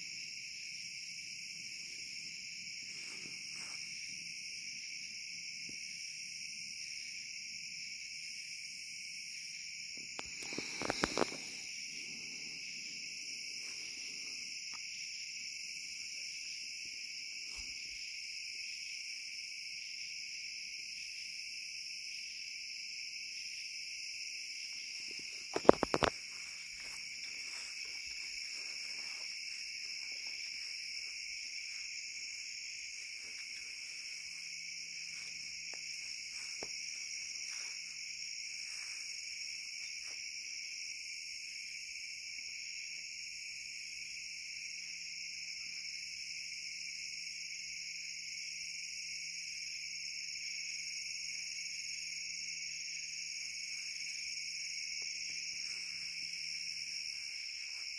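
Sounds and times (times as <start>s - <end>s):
crickets and insects chirping: 0.0s - 57.9s.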